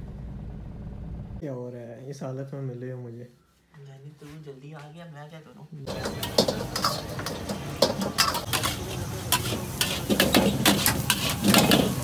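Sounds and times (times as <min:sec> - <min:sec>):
metal spatula clanging in a wok: 0:05.9 - 0:12.0
stir-frying sizzle: 0:05.9 - 0:12.0.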